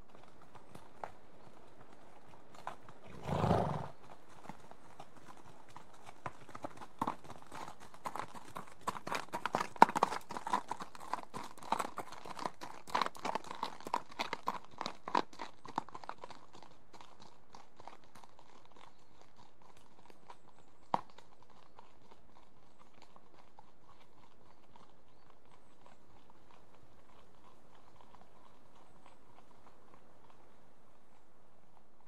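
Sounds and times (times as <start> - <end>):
hooves on gravel: 0.0 - 32.0
horse snorting: 3.0 - 4.0.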